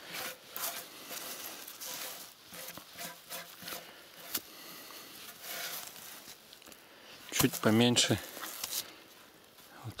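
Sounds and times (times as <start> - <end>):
antler scraping: 0.0 - 6.4
dry leaves rustling: 0.0 - 9.7.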